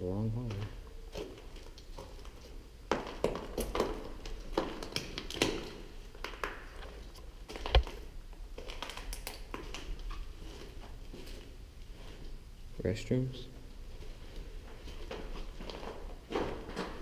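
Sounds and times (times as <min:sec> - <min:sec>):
footsteps crunching on debris: 0:13.8 - 0:17.0.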